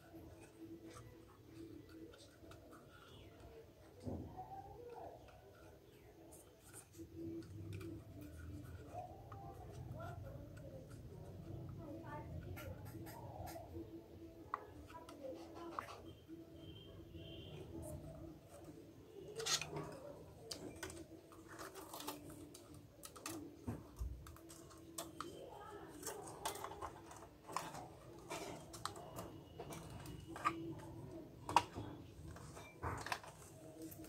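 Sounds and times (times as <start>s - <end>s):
plastic printer parts clicking: 14.5s - 34.0s.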